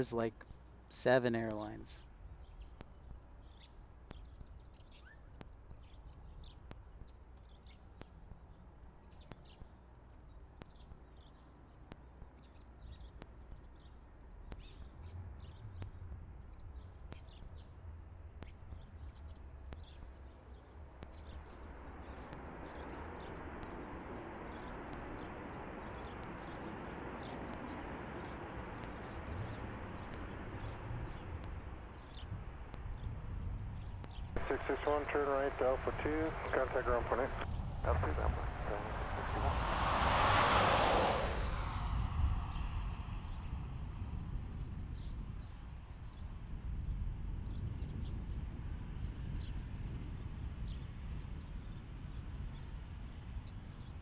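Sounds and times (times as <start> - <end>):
faint insect chirping: 0.1 - 39.5, 41.9 - 54.0
low rumble: 26.2 - 45.7
jet engine roar: 34.4 - 44.9.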